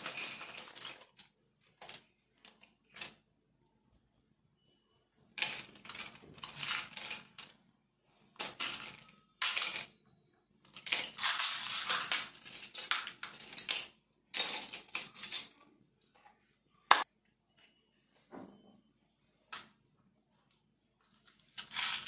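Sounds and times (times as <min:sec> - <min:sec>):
construction kit parts clattering: 0:00.0 - 0:03.3, 0:05.4 - 0:07.7, 0:08.3 - 0:10.0, 0:10.7 - 0:15.6, 0:21.0 - 0:22.0.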